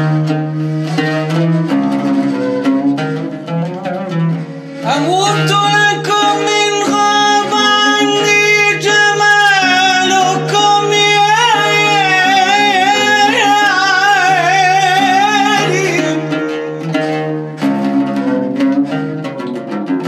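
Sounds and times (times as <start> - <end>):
man singing with vibrato: 4.8 - 17.1.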